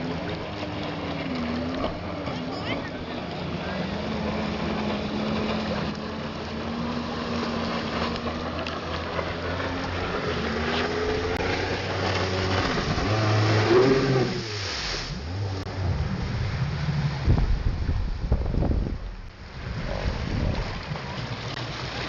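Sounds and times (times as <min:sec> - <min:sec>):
jet ski engine running: 0:00.0 - 0:22.0.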